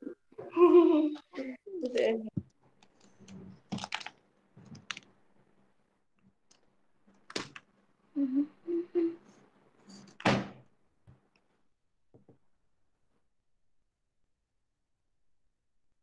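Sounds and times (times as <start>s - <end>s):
thumps and knocks in a room: 10.2s - 11.4s, 12.1s - 12.5s.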